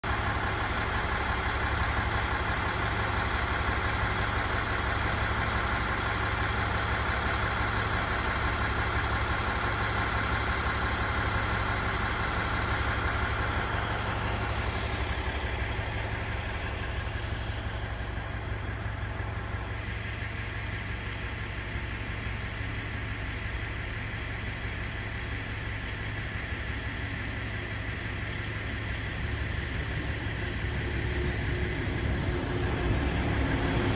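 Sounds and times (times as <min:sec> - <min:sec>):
diesel engine idling: 0:00.0 - 0:33.9
high-pitched engine whine: 0:00.0 - 0:33.9.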